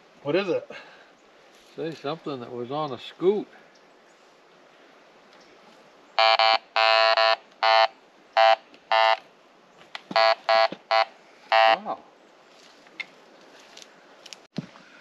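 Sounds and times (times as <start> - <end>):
metal detector beeps: 6.2 - 9.2, 10.2 - 11.8.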